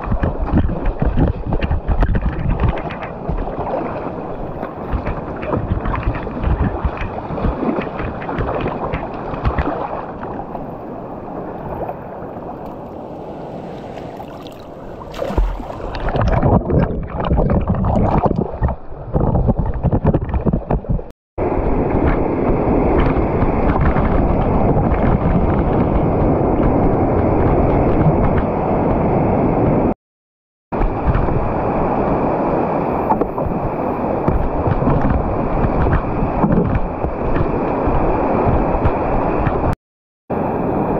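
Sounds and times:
whitewater rushing and splashing: 2.4 - 17.4
sharp splashes: 11.7 - 18.8.

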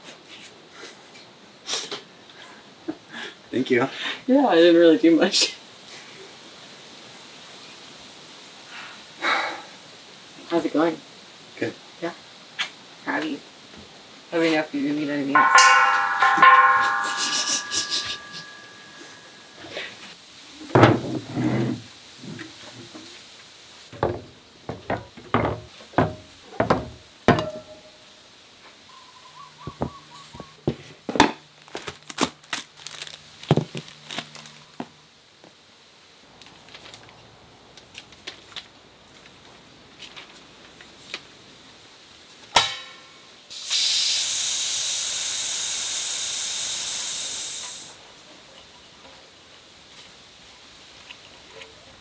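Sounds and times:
metal cans set down on wood: 20.7 - 21.7, 23.9 - 27.8
compressed air hissing from valve: 43.5 - 48.0.

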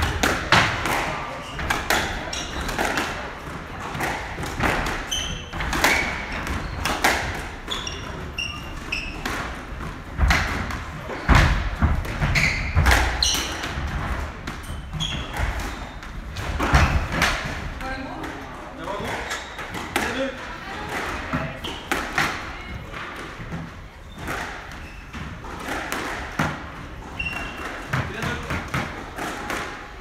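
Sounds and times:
squash ball hitting rackets and walls: 0.0 - 30.0
shoes squeaking on wooden floor: 0.5 - 3.1, 4.0 - 17.3, 23.4 - 25.8, 26.4 - 28.4.

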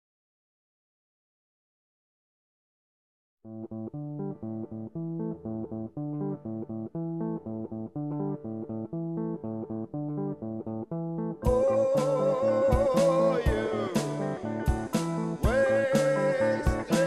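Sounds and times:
guitar picking single notes: 3.5 - 17.0
person singing: 11.4 - 17.0.

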